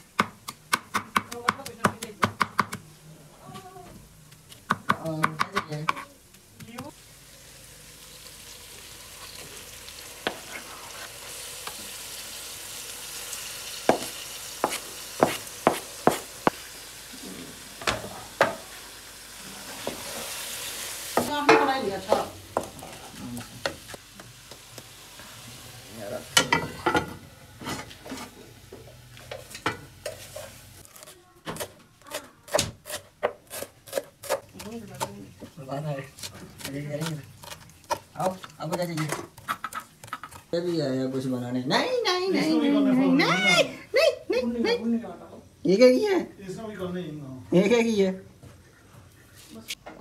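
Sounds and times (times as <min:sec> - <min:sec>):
knife chopping on cutting board: 0:00.2 - 0:02.8, 0:13.9 - 0:16.6
meat sizzling in a pan: 0:06.9 - 0:30.9
spatula scraping a pan: 0:10.2 - 0:11.4, 0:27.5 - 0:28.5, 0:29.3 - 0:31.8, 0:36.0 - 0:40.6.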